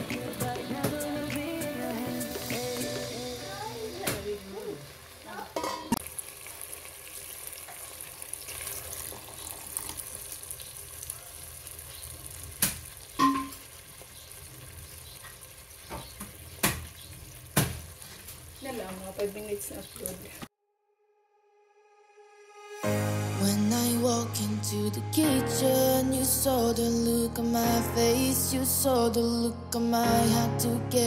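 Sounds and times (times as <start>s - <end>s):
pot simmering with sizzling hiss: 0.0s - 20.5s.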